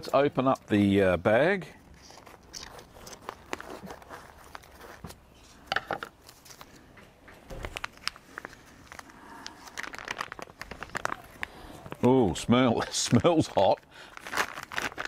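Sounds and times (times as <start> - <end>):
plastic bag crinkling: 1.9 - 5.0, 7.5 - 15.0.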